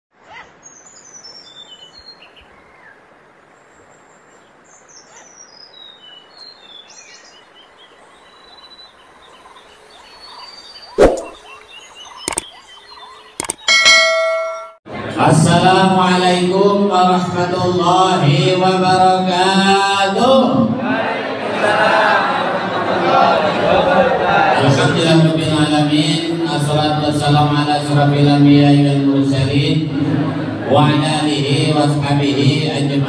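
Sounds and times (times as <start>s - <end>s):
birds chirping: 0.3s - 14.8s
sharp clicks: 12.2s - 12.5s, 13.4s - 13.7s
bell-like ding: 13.6s - 14.8s.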